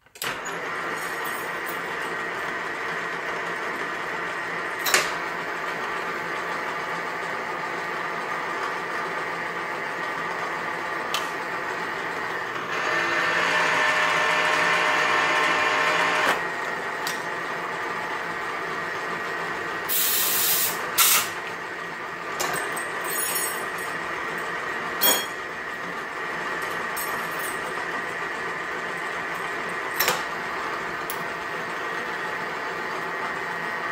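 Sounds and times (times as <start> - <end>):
lathe humming drone: 9.5 - 19.9.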